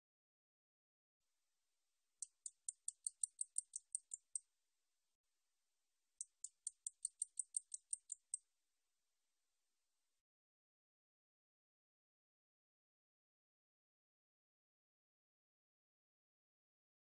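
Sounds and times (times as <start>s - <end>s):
katydid high-pitched ticks: 2.2s - 4.4s, 6.2s - 8.4s.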